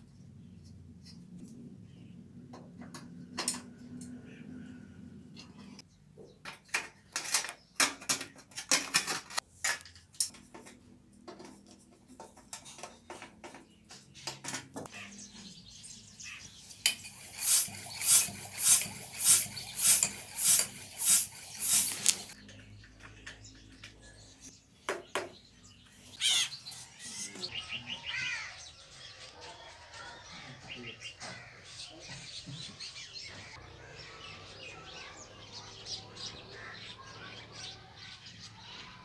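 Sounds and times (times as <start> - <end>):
floor pump hissing: 17.0 - 22.4.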